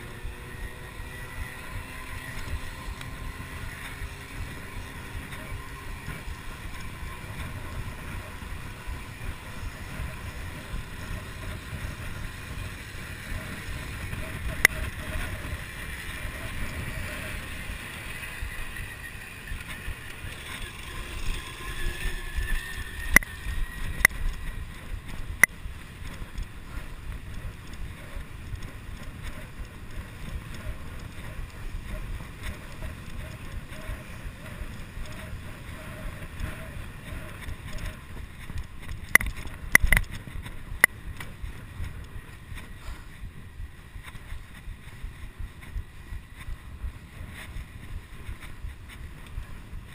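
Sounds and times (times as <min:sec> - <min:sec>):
tyres rumbling on pavement: 0:00.0 - 0:49.9
wind buffeting microphone: 0:00.0 - 0:49.9
sharp clicks: 0:19.5 - 0:42.7.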